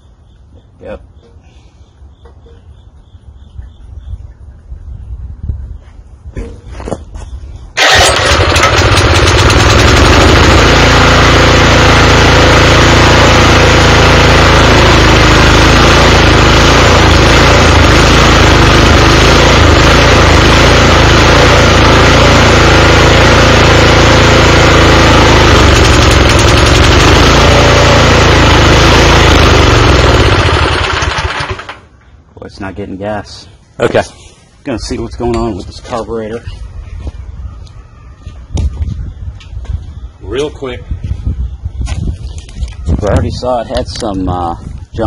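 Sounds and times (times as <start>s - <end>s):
small tiller engine running: 7.8s - 31.9s.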